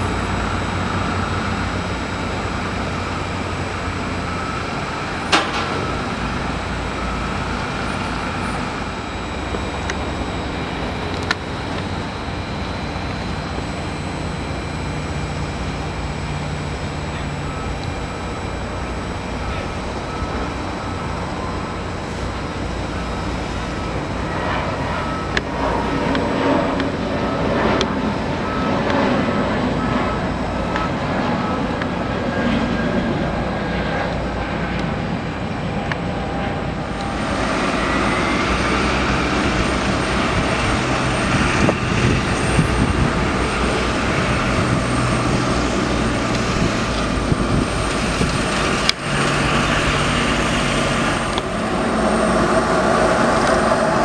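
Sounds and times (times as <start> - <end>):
jet engines roaring: 0.0 - 54.0
jet engines whining: 0.0 - 54.0
faint beep: 19.4 - 21.7, 28.3 - 28.9, 29.7 - 31.7
rising tone: 36.1 - 54.0.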